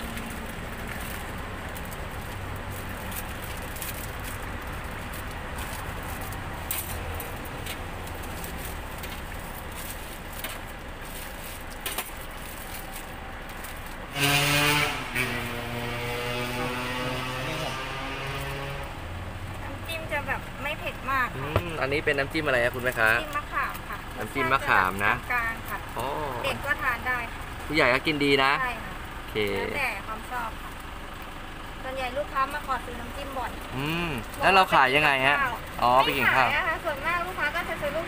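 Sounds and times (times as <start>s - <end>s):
street traffic rumble: 0.0s - 38.0s
vehicle passing close: 12.4s - 38.0s.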